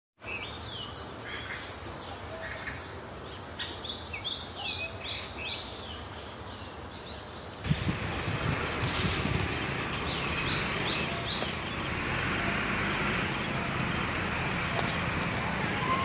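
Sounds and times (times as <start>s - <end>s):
birds chirping: 0.2s - 16.0s
steady outdoor hiss: 0.2s - 16.0s
low rumble: 7.7s - 16.0s.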